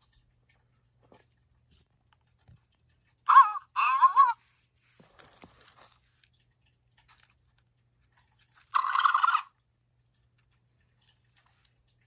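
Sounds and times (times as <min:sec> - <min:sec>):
toy electronic squeaking chirp: 0:08.7 - 0:09.5.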